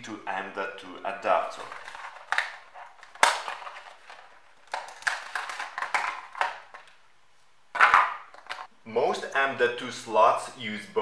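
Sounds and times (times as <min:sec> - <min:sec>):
plastic tray crinkling and scraping: 0:01.6 - 0:06.9.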